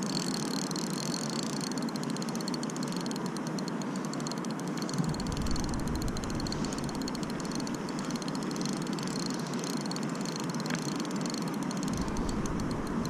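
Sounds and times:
fishing reel gears whirring: 0.0s - 13.0s
wind buffeting microphone: 5.0s - 8.2s.

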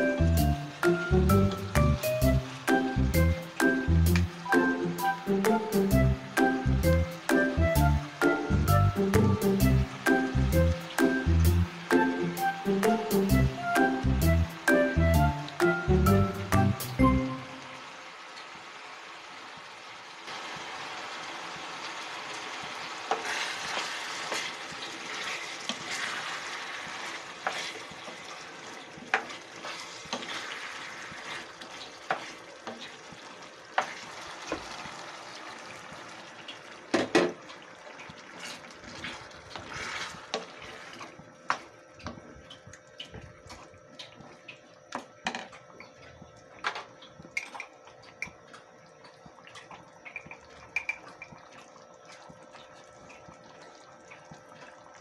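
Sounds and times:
sauce sizzling in a pan: 0.0s - 14.8s, 15.6s - 41.8s.

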